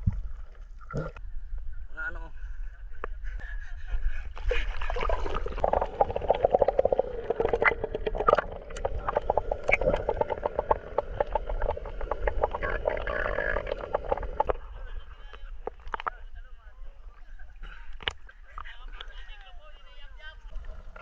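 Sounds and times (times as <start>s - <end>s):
underwater gurgling: 4.6s - 16.1s
underwater crackling clicks: 6.2s - 14.6s, 15.3s - 16.2s.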